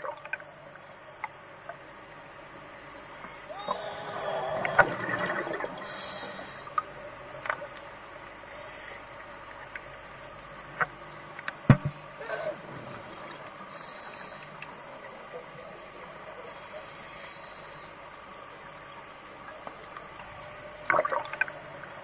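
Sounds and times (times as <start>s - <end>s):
muffled underwater hiss: 0.0s - 22.0s
sharp clicks and knocks: 10.8s - 12.0s
low thump: 11.7s - 12.0s.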